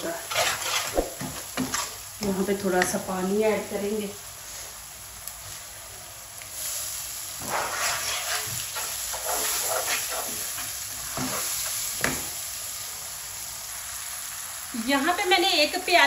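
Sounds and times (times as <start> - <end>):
wooden spoon scraping a pan: 0.0 - 2.0, 7.4 - 12.3
oil sizzling: 0.0 - 16.0.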